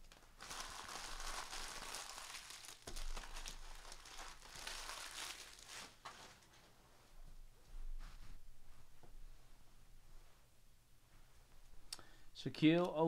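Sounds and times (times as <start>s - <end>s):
card pack wrappers crinkling tearing: 0.0s - 6.4s.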